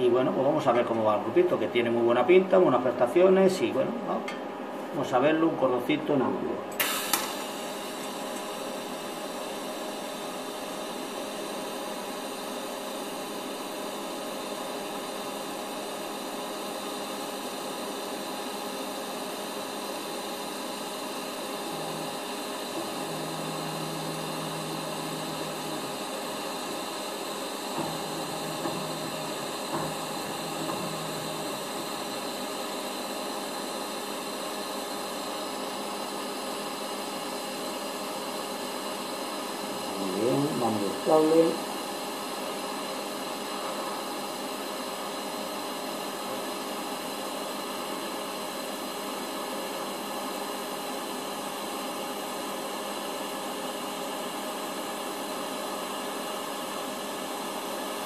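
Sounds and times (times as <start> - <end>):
welding arc hissing: 6.8 - 10.2, 20.2 - 34.6, 39.5 - 41.7.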